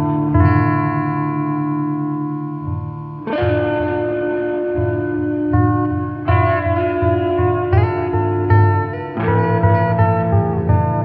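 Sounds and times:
music with held chords: 0.0 - 11.0
steady low beat: 0.0 - 11.0.

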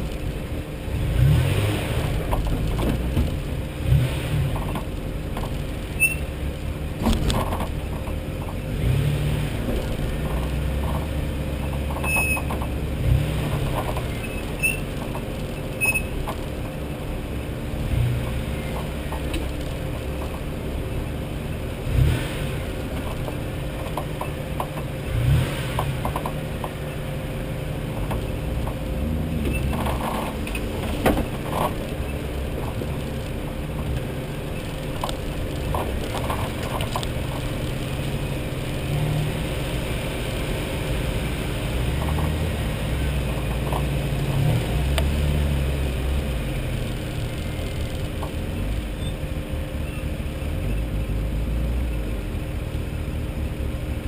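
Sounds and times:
off-road vehicle engine low revs: 0.8 - 16.3, 17.1 - 54.0
body and load rattling: 27.8 - 38.7.

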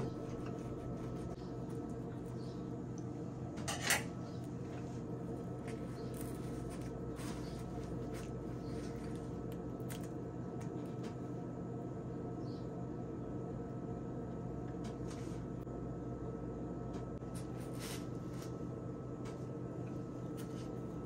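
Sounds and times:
steady low hum: 0.0 - 21.0
tortilla wrap rustling and crinkling: 5.5 - 10.0.

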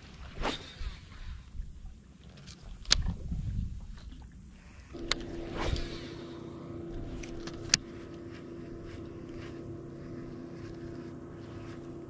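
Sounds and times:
short whoosh: 5.0 - 11.9
electric trolling motor humming: 5.0 - 12.0.

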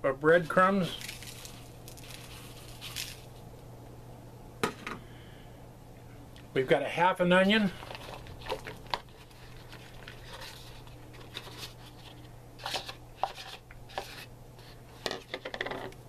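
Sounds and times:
steady low hum: 0.0 - 16.0
onion pieces tumbling into bowl: 0.8 - 3.3.

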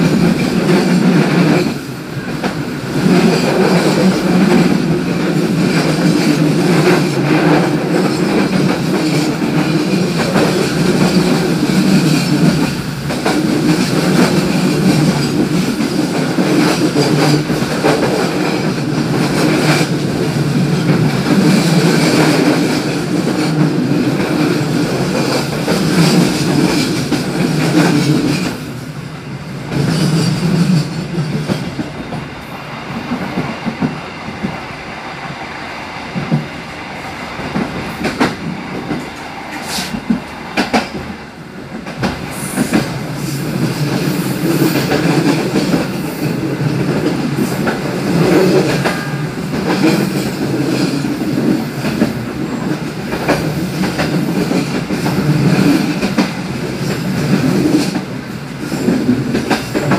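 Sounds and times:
train wheels on rail: 0.0 - 59.9
clacks over rail joints: 37.4 - 59.9.

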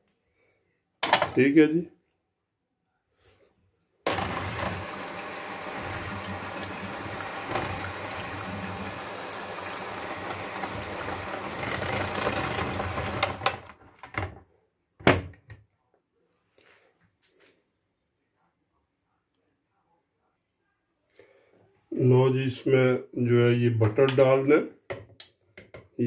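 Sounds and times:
electric hand mixer whisking: 4.1 - 13.8.

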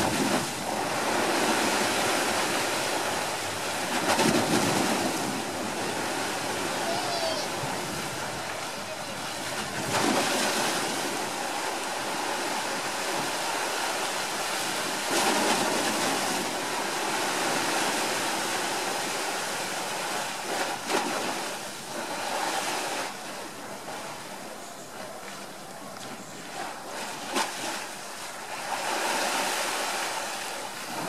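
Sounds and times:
sea waves washing in: 0.0 - 31.0.

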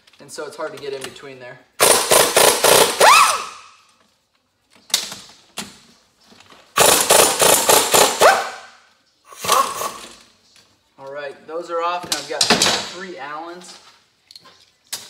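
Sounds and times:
impact wrench hammering: 1.8 - 3.6, 6.8 - 8.6.

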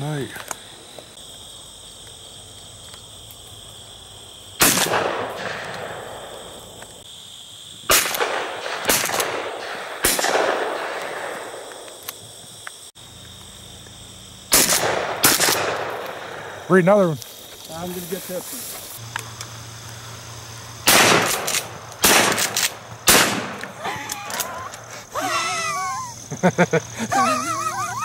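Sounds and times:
insect chirring: 0.0 - 28.0
shotgun shots: 4.6 - 6.4, 7.9 - 11.7, 14.5 - 16.6, 20.8 - 23.7.

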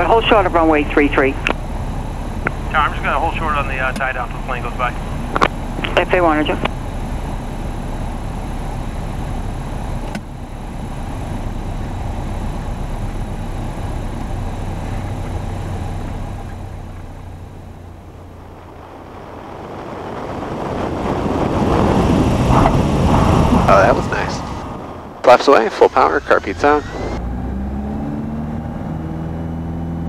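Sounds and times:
light aircraft engine: 0.0 - 30.0
wind noise: 17.9 - 25.5.

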